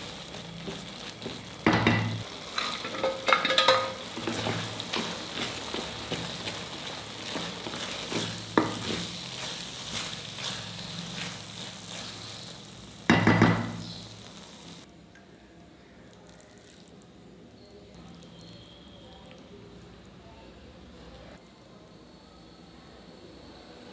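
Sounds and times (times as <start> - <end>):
food sizzling in pan: 0.0 - 14.9
metal spatula scraping pan: 0.6 - 12.5.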